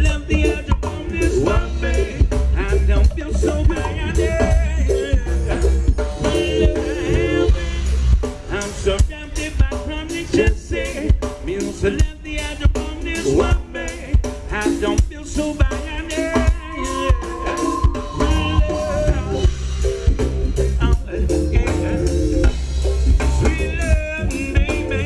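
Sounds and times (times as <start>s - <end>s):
person singing: 0.0s - 19.6s, 20.6s - 22.5s, 23.4s - 25.0s
live ska band playing: 0.0s - 25.0s.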